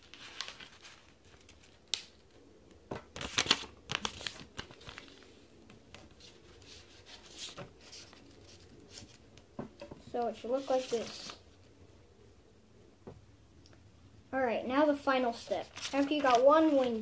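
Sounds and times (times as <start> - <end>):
paper rustling and crinkling: 0.0 - 2.3, 3.1 - 9.4, 10.2 - 11.6, 15.3 - 17.0.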